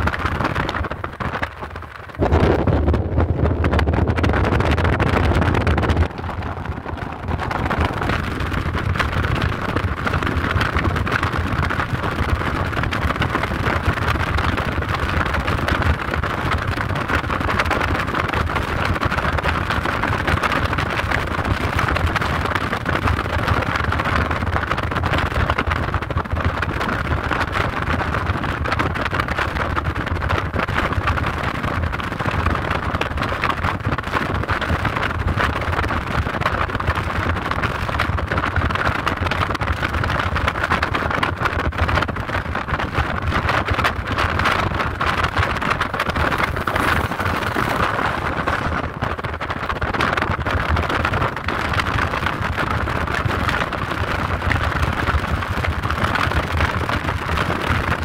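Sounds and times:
car road noise and wind: 0:00.0 - 0:58.0.

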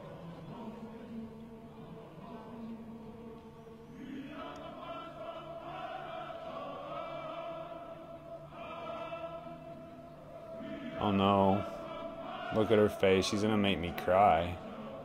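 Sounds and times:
choir singing long notes: 0:00.0 - 0:15.0.

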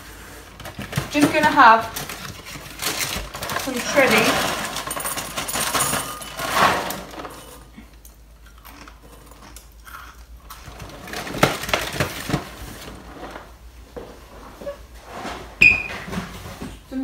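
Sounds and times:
cereal clattering into a bowl: 0:00.6 - 0:07.7.

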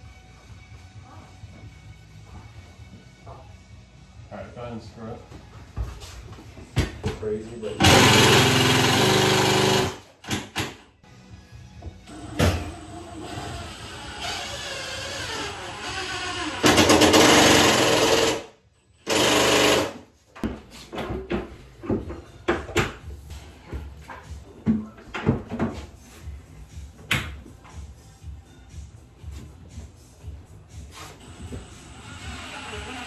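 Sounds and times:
handheld power tool running: 0:07.8 - 0:10.0, 0:16.6 - 0:20.0.

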